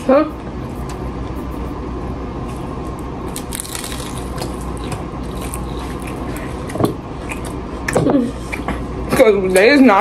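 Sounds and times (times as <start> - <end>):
chewing crunchy tacos: 2.4 - 9.0.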